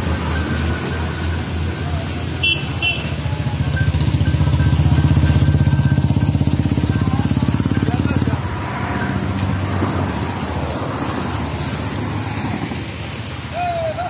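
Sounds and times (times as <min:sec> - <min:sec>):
motorcycle engine running: 0:00.0 - 0:10.2.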